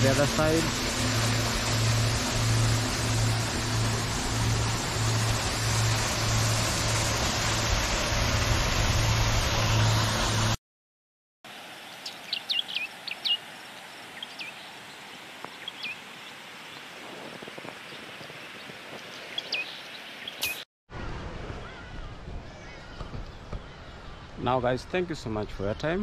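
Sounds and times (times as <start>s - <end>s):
waterfall rushing: 0.0s - 10.6s
bird chirping: 12.0s - 16.4s, 17.9s - 20.6s.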